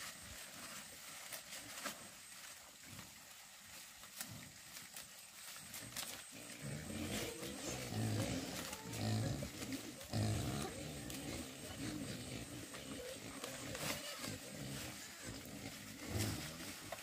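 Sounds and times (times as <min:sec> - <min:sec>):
farm animal low calls: 0:06.0 - 0:17.0.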